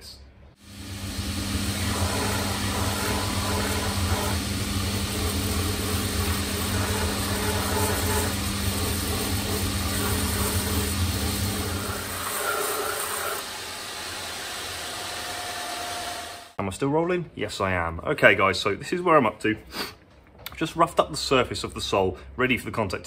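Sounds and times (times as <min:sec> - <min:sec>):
motor hum: 0:00.6 - 0:14.1
abrasive hissing on leather: 0:01.8 - 0:13.4.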